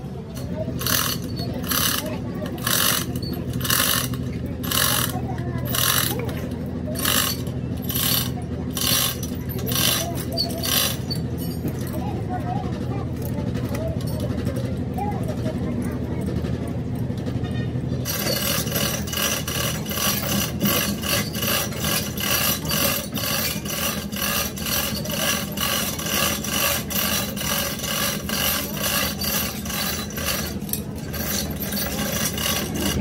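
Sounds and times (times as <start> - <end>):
hand tool scraping strokes: 0.4 - 11.8, 18.1 - 33.0.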